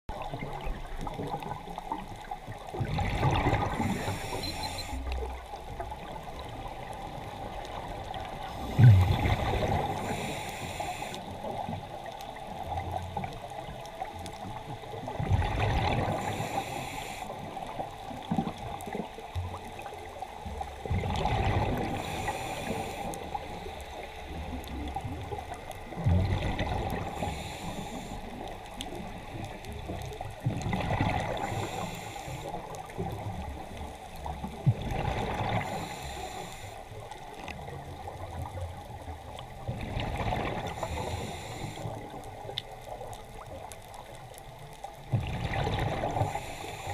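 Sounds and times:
regulator hiss: 3.7s - 5.0s, 9.9s - 11.4s, 16.2s - 17.5s, 22.0s - 24.4s, 27.2s - 28.5s, 31.4s - 32.6s, 35.6s - 36.9s, 40.8s - 42.1s, 46.2s - 46.9s
diver exhaling bubbles underwater: 8.6s - 10.1s, 20.9s - 22.4s.

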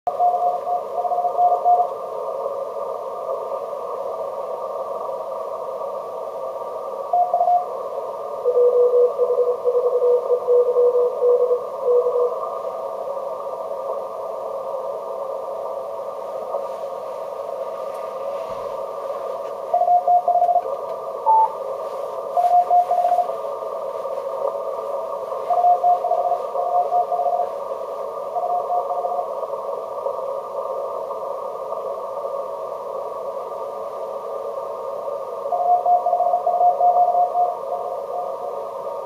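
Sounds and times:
receiver hiss: 0.1s - 39.0s
morse code beeps: 8.5s - 12.3s, 19.8s - 21.6s, 22.4s - 23.3s.

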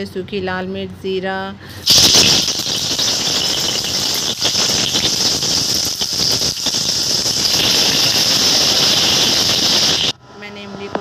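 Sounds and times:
spices sizzling in hot oil: 1.8s - 10.2s.

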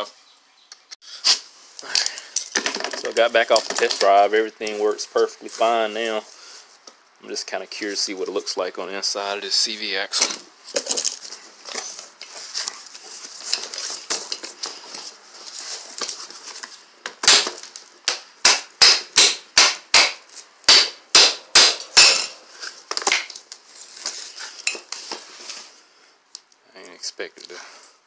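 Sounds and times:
handling clicks and rustles: 1.8s - 5.7s, 10.2s - 18.1s
hand tool striking metal joint: 18.1s - 22.4s.

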